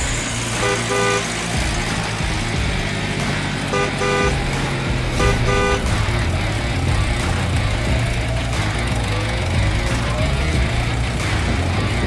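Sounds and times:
low engine rumble: 0:00.0 - 0:12.0
vehicle horn tooting: 0:00.6 - 0:01.4, 0:03.7 - 0:04.6, 0:05.2 - 0:06.2.

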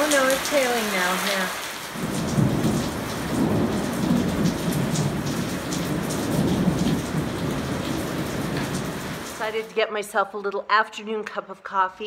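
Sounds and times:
heavy rain hissing: 0:00.0 - 0:09.6
hailstones ticking: 0:00.0 - 0:09.7.

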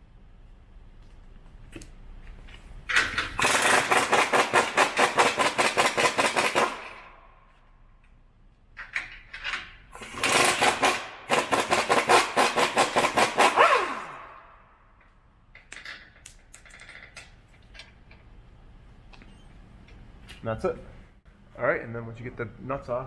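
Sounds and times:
impact wrench hammering: 0:02.9 - 0:07.2, 0:10.0 - 0:16.1.

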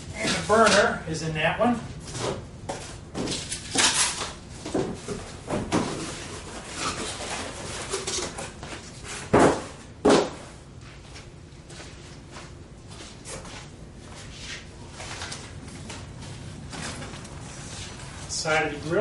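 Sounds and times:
cardboard rustling and scraping: 0:02.0 - 0:09.8, 0:14.2 - 0:19.0.

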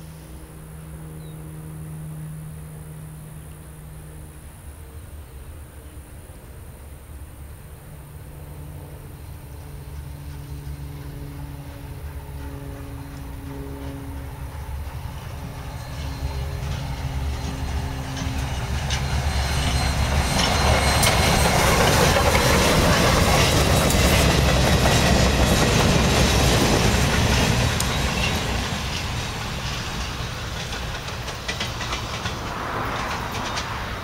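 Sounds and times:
steam train rumbling past: 0:07.1 - 0:34.0
wheels clacking over rail joints: 0:09.9 - 0:34.0.

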